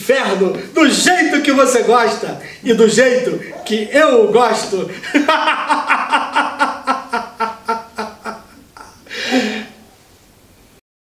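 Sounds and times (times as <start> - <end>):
man laughing heartily: 4.9 - 9.8
breathy outbreath: 9.1 - 9.8.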